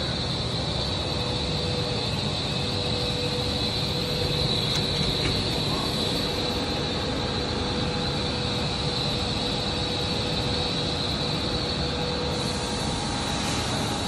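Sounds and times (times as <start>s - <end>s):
high machine whine: 0.0s - 14.0s
machine hum: 0.0s - 14.0s.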